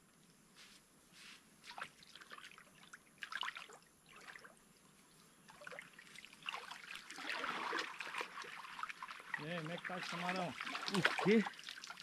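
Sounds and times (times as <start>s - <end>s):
bare feet splashing in water: 1.7s - 4.5s, 5.5s - 12.0s.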